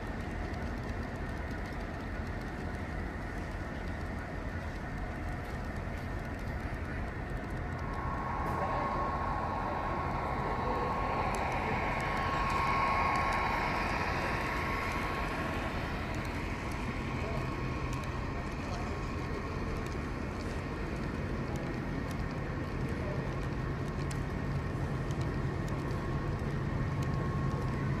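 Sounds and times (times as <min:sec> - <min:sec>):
model train wheels rumbling on rail: 0:00.0 - 0:28.0
model train motor whine: 0:07.7 - 0:20.6.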